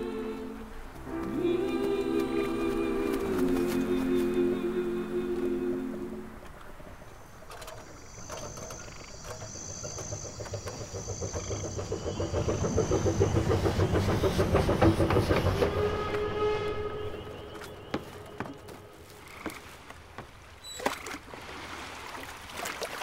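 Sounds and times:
steam locomotive chugging: 0:07.3 - 0:18.7.

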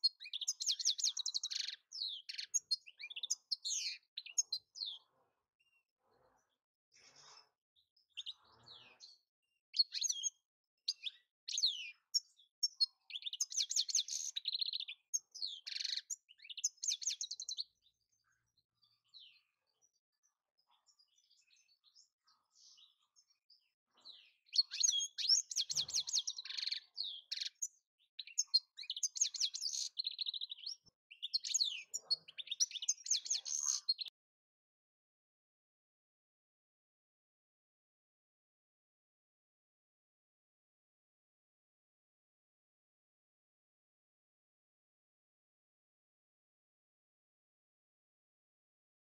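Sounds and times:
goldfinch singing: 0:00.0 - 0:05.1, 0:09.0 - 0:17.8, 0:24.1 - 0:34.1.

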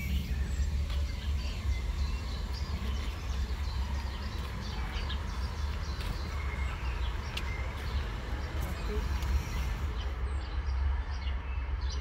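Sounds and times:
steady low rumble: 0:00.0 - 0:11.9.

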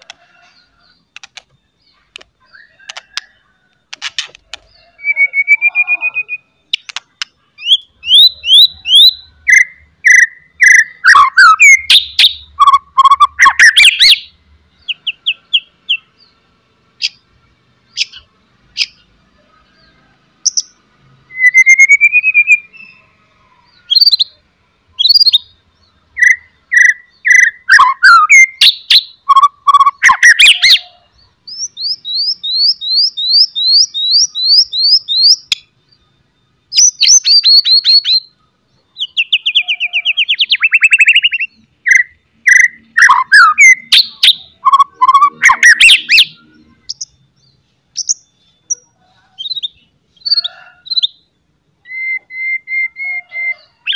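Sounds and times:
bird whistled phrases: 0:04.9 - 0:07.0, 0:07.6 - 0:14.3, 0:21.3 - 0:23.0, 0:26.2 - 0:31.0, 0:39.0 - 0:47.0, 0:51.8 - 0:53.9.

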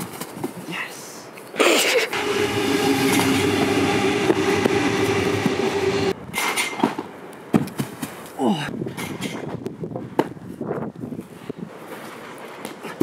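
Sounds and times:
train rumbling past with whine: 0:02.1 - 0:06.3.

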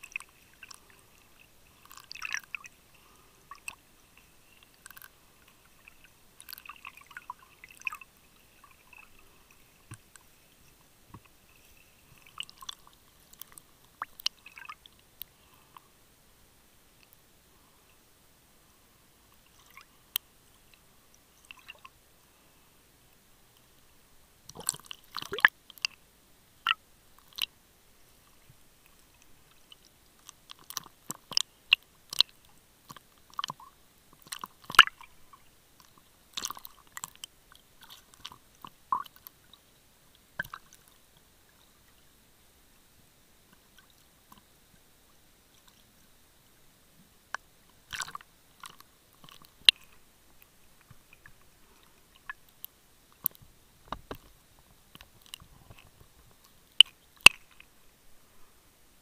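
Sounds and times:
underwater clicking and crackling: 0:00.0 - 0:15.8, 0:19.3 - 0:22.0, 0:24.5 - 0:26.0, 0:26.6 - 0:27.6, 0:28.2 - 0:41.3, 0:47.3 - 0:57.7.

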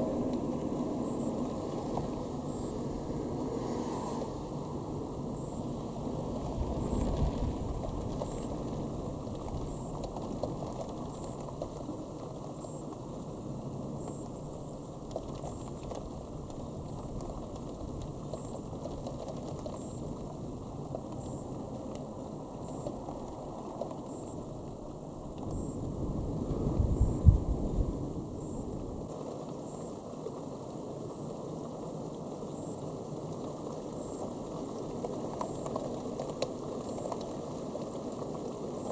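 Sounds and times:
faint ticks: 0:06.8 - 0:13.1, 0:14.0 - 0:25.8, 0:31.0 - 0:38.9
distant thunder rumble: 0:25.4 - 0:29.0.

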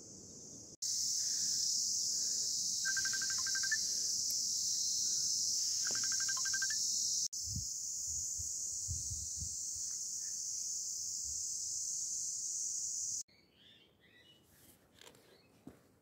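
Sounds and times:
insects chorus: 0:00.0 - 0:13.2
small bird singing: 0:02.8 - 0:03.8, 0:05.7 - 0:07.3, 0:13.3 - 0:14.5.

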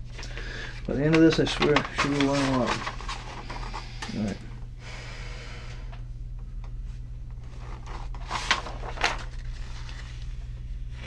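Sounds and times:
low electrical hum: 0:00.0 - 0:11.0
paper rustling: 0:00.6 - 0:04.3, 0:07.4 - 0:10.4.

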